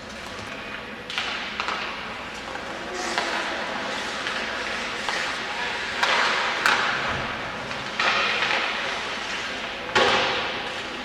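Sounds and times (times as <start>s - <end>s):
steady rink hum: 0.0s - 11.0s
skate scraping on ice: 2.3s - 6.7s.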